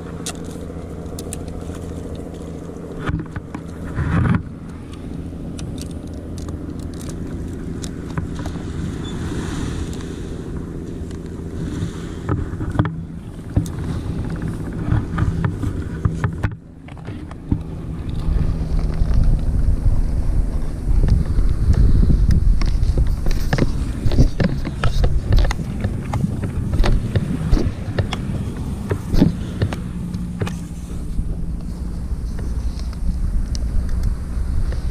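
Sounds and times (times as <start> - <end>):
low engine drone: 0.0 - 34.9
wind rumble on microphone: 0.0 - 34.9.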